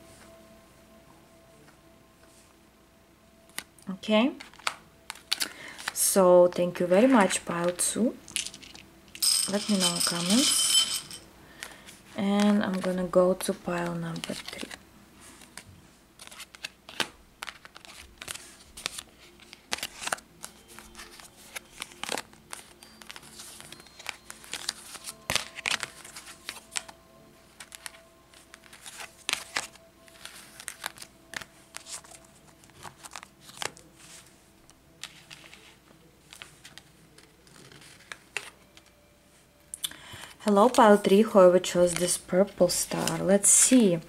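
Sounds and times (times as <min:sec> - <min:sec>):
soft background music: 0:00.0 - 0:44.0
cards shuffled and set down: 0:04.4 - 0:06.0, 0:07.1 - 0:13.0, 0:13.8 - 0:14.8, 0:15.4 - 0:34.2, 0:34.9 - 0:39.0, 0:41.9 - 0:43.7.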